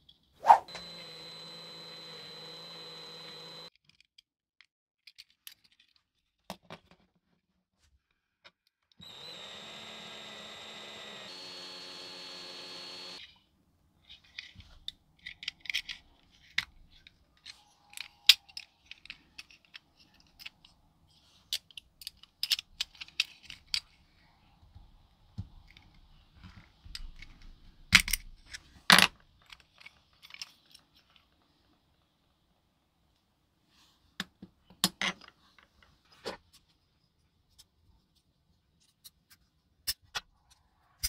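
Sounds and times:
small electric drill running: 0.5s - 3.7s, 9.0s - 13.3s
small metal parts clinking: 14.1s - 20.7s, 21.6s - 23.9s.

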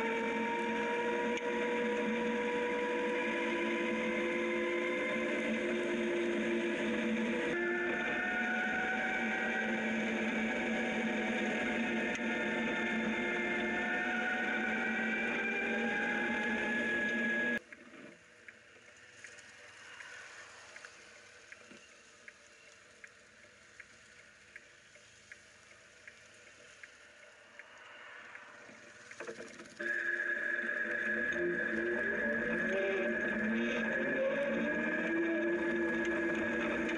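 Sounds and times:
electric motor whining: 0.0s - 17.6s, 29.7s - 36.9s.

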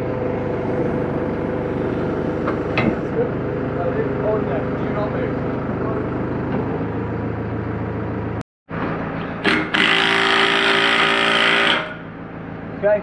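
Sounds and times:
tractor engine running: 0.0s - 9.5s.

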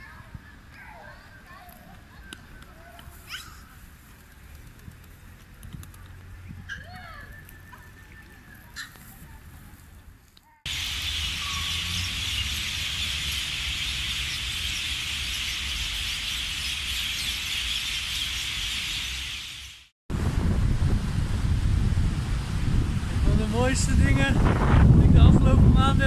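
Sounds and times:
faint squeaks and clicks: 0.4s - 9.5s
flock of birds chattering: 10.7s - 19.8s.

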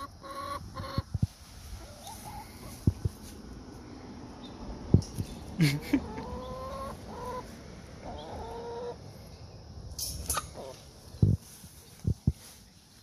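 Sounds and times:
hens calling: 0.0s - 3.0s, 5.6s - 9.2s, 10.3s - 11.2s.

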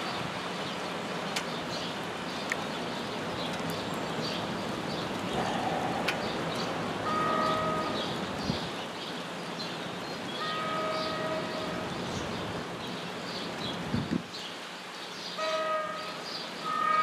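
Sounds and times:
rain hissing: 0.0s - 17.0s
train horn blast: 7.0s - 8.1s, 10.4s - 11.9s, 15.4s - 17.0s.

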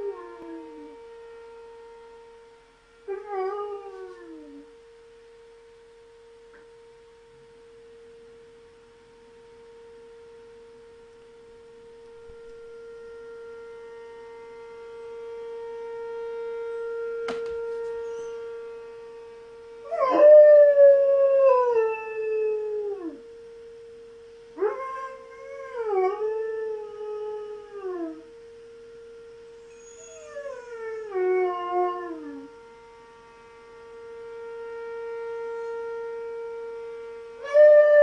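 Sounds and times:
dog howling: 0.0s - 1.0s, 3.1s - 4.7s, 17.6s - 18.5s, 19.8s - 23.2s, 24.6s - 28.3s, 29.6s - 32.5s
warning siren steady tone: 0.0s - 38.0s.

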